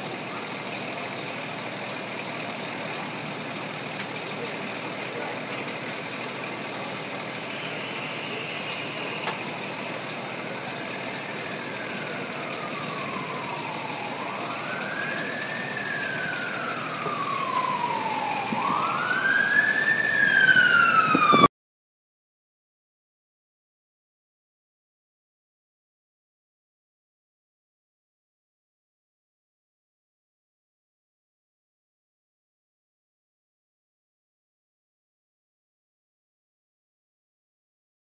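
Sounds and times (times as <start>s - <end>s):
engine rumble: 0.0s - 21.5s
fire truck siren wailing: 0.0s - 21.5s.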